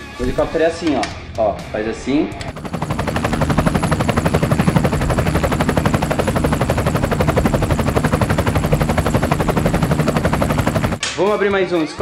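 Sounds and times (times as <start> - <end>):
helicopter rotor chopping: 2.3 - 11.1.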